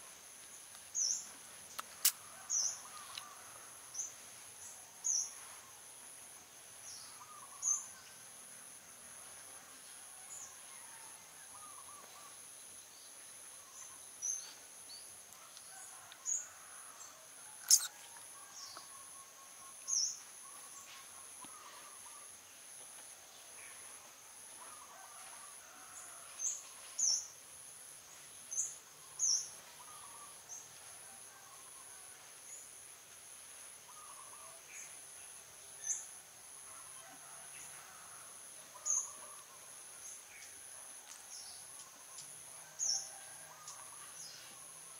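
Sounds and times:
sharp bird chirps: 17.6s - 18.0s.

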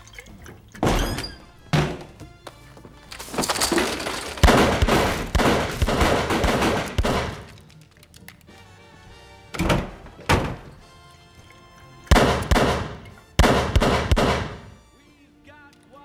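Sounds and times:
dramatic music: 10.8s - 14.8s.

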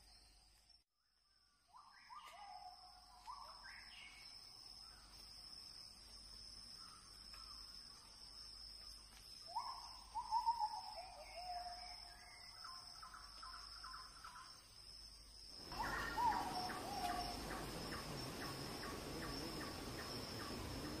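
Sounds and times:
high insect drone: 3.2s - 21.0s
whistled bird calls: 9.5s - 12.8s, 15.7s - 21.0s.

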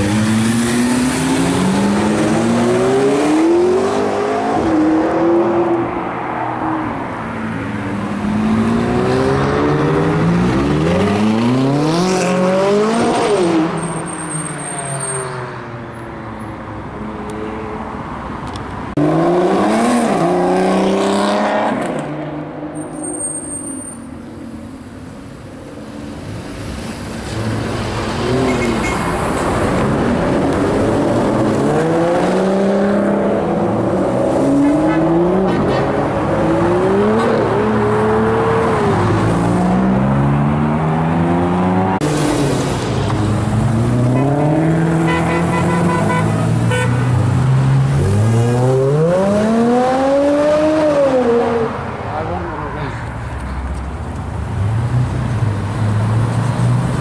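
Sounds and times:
sports car engines revving: 0.0s - 15.7s, 18.4s - 23.2s, 24.2s - 57.0s.

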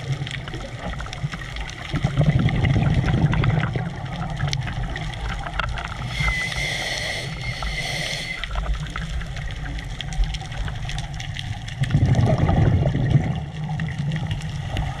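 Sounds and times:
exhaled bubbles bubbling: 0.0s - 15.0s
muffled underwater rumble: 0.0s - 15.0s
regulator inhale hiss with whistle: 6.0s - 8.7s.

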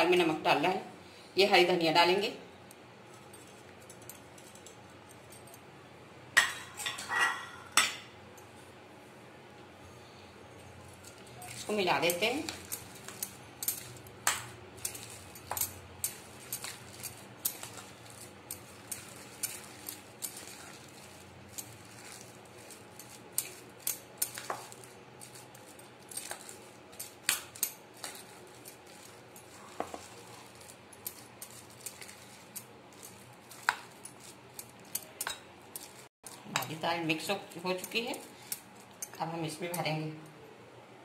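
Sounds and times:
bangles clinking: 3.1s - 5.6s, 10.4s - 36.6s
hand mixing paste in bowl: 10.6s - 39.8s.

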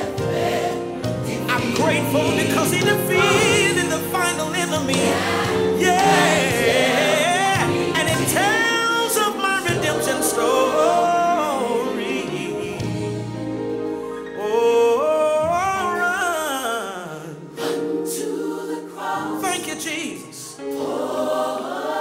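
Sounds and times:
instrumental accompaniment: 0.0s - 16.2s
gospel choir singing: 0.0s - 22.0s.

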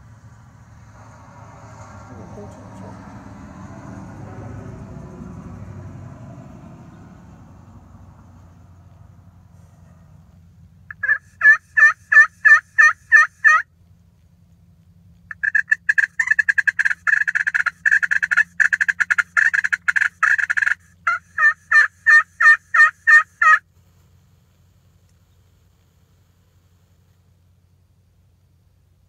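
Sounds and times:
turkey call yelps: 10.9s - 13.7s, 15.3s - 23.6s.

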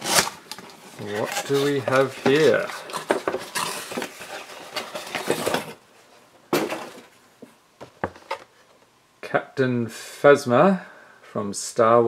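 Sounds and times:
cardboard rustling and scraping: 0.0s - 7.1s.

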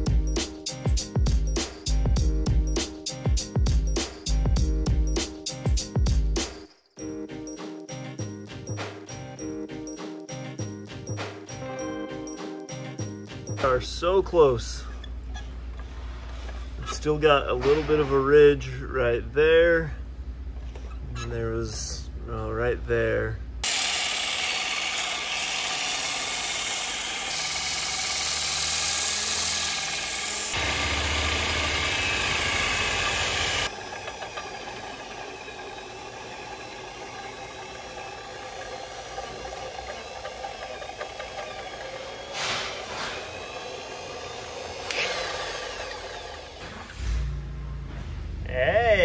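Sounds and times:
electric drill motor humming: 23.6s - 47.0s
sanding belt hissing on wood: 23.6s - 47.3s.

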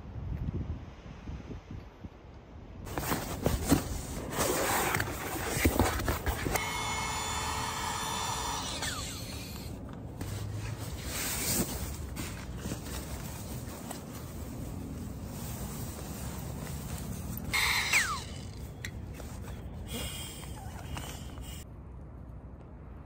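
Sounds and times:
tent fabric rustling: 2.9s - 6.6s, 10.2s - 17.6s
electric air pump whining: 6.3s - 9.8s, 17.5s - 18.6s.

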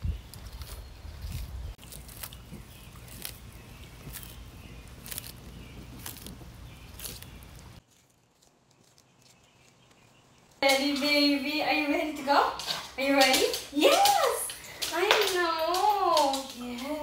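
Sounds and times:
tortoises crunching lettuce: 0.3s - 13.4s.

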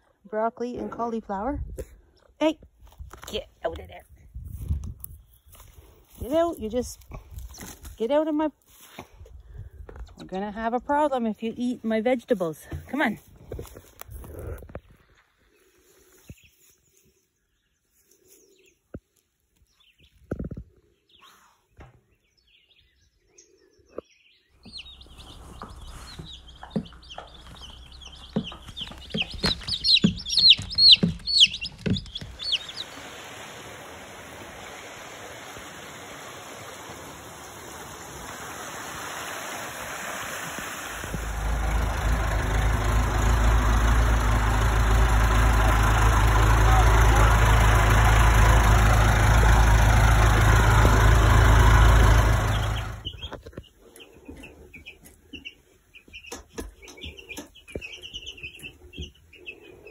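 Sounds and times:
chicks peeping: 24.6s - 33.1s, 52.2s - 59.9s
tractor engine running: 24.6s - 33.4s, 40.6s - 53.4s.

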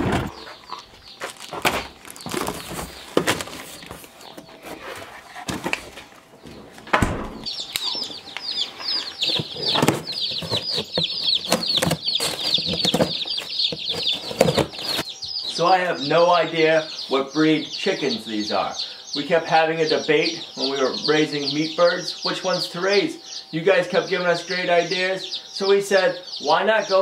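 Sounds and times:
knocks and footsteps: 0.0s - 15.6s
chicks peeping: 0.0s - 27.0s.

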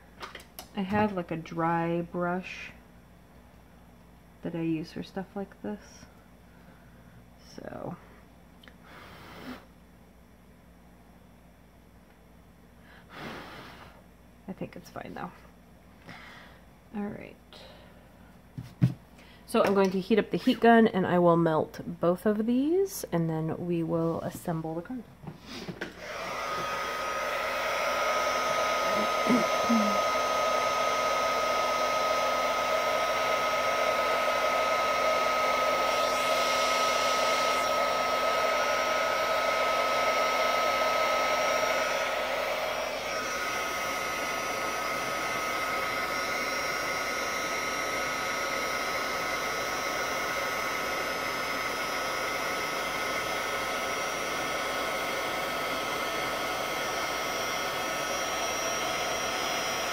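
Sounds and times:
heat gun blowing and whining: 25.5s - 59.9s.

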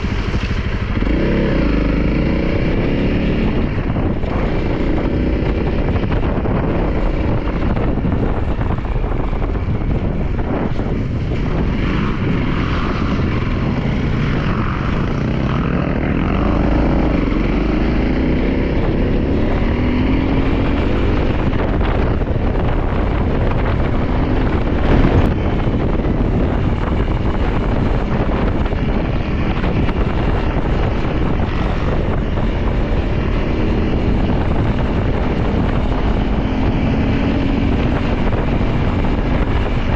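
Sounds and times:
motorcycle engine accelerating: 0.0s - 39.9s
wind rushing over microphone: 0.0s - 39.9s.

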